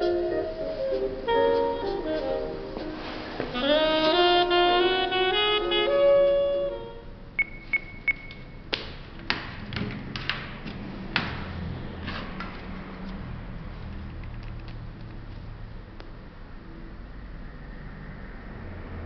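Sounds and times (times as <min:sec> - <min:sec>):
jazz saxophone tune: 0:00.0 - 0:07.4
short high beeps: 0:07.4 - 0:08.6.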